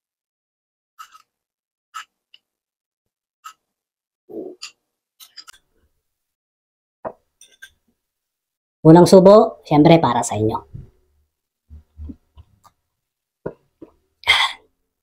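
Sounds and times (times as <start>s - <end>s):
spoon clinking glass bowl: 7.4s - 7.8s.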